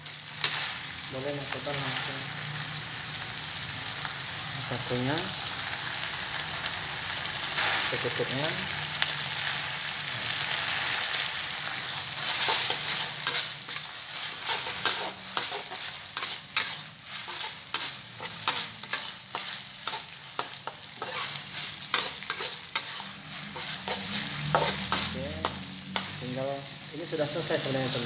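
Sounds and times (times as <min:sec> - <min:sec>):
chillies sizzling in oil: 0:00.0 - 0:28.0
metal spatula scraping wok: 0:11.6 - 0:26.4.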